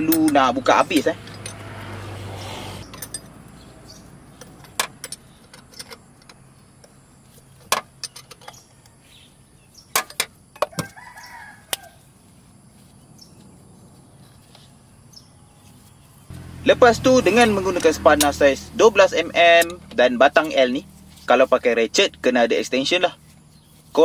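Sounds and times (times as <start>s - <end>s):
spanner clicking on metal bolt: 2.8s - 3.4s, 4.4s - 6.4s.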